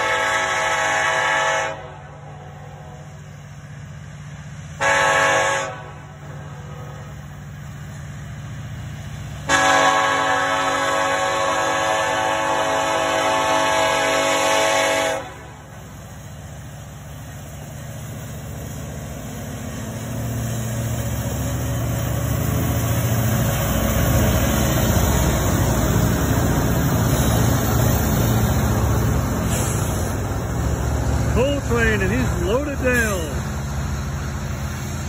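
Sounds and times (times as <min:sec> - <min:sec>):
locomotive air horn chord: 0:00.0 - 0:02.3, 0:04.8 - 0:06.9, 0:09.5 - 0:15.6
diesel locomotives rumbling past: 0:00.0 - 0:35.0
freight cars rolling by: 0:15.2 - 0:35.0.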